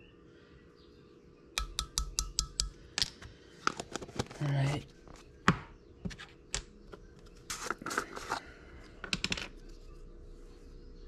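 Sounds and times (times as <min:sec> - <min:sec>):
plastic jar clicks and taps: 0:01.6 - 0:03.8
scraping rustle of jar opening: 0:07.4 - 0:08.6.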